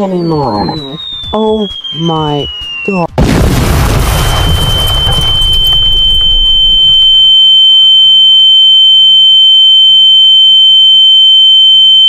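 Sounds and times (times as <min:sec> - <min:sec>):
high-pitched ringing tone: 0:00.0 - 0:03.2, 0:04.3 - 0:12.0
low explosion rumble: 0:00.2 - 0:07.3.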